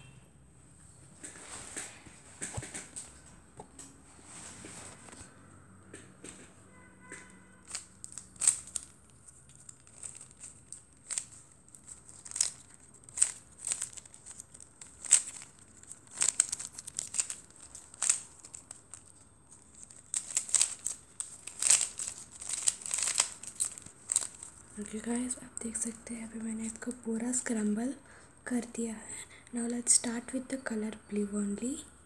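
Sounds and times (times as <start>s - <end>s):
puzzle cube layers clicking: 7.7s - 24.6s.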